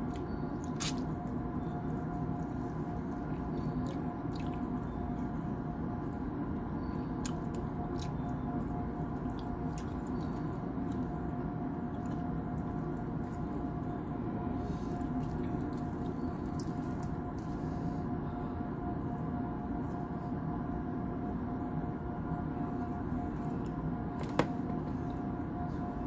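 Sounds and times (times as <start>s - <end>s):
wet mouth clicks and smacks: 0.0s - 1.1s
man chewing: 0.0s - 5.4s
steady hum with tones: 0.0s - 26.0s.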